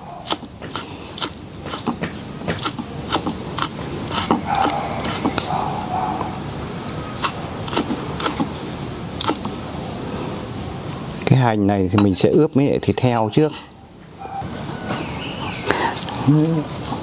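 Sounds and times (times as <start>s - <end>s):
knife chopping on wooden board: 0.2s - 5.4s.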